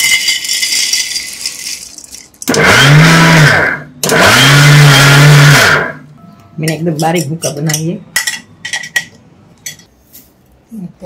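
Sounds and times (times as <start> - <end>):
peanuts clattering into steel jar: 0.0 - 2.5
mixer grinder motor whirring: 2.5 - 6.0.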